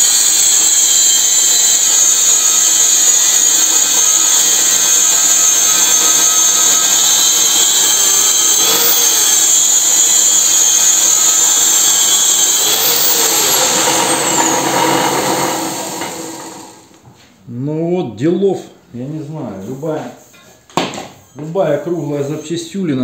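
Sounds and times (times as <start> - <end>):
angle grinder grinding metal: 0.0 - 17.0.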